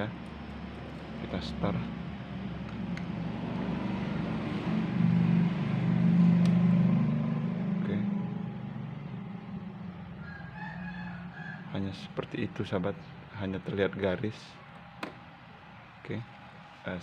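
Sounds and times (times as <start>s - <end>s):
vehicle engine passing by: 3.1s - 10.1s.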